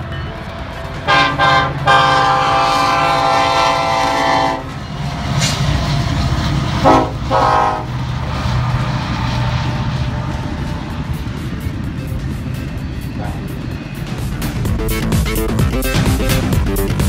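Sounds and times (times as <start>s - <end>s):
passing train rumbling: 0.0s - 17.0s
locomotive air horn blasts: 1.0s - 4.9s, 6.8s - 8.0s.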